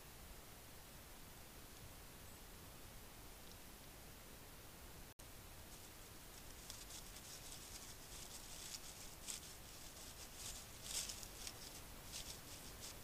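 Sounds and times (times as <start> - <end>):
deer rustling dry leaves: 5.4 - 13.0.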